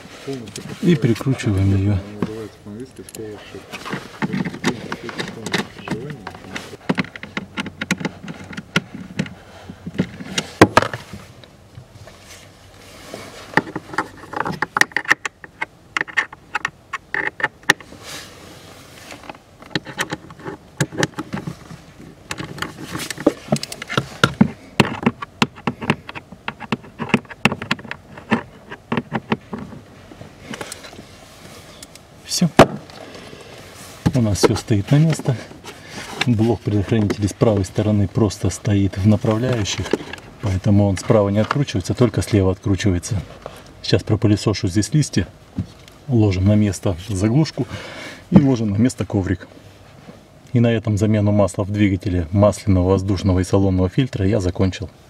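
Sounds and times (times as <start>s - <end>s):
plastic box knocking and rattling: 3.9s - 11.2s.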